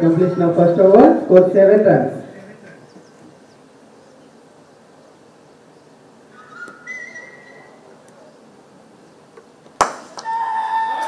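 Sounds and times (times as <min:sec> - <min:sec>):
faint outdoor background noise: 0:00.0 - 0:11.0
cricket bat striking ball: 0:09.8 - 0:10.3.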